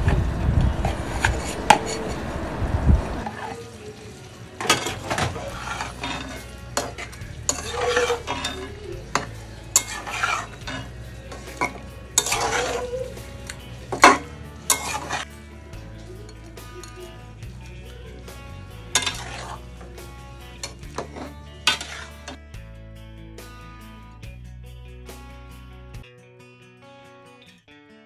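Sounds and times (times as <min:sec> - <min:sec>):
food sizzling: 0:00.0 - 0:22.7
spatula scraping a pan: 0:00.7 - 0:02.3, 0:04.6 - 0:15.4, 0:16.0 - 0:22.4
spatula clinking against pan: 0:04.6 - 0:15.3, 0:19.0 - 0:19.6.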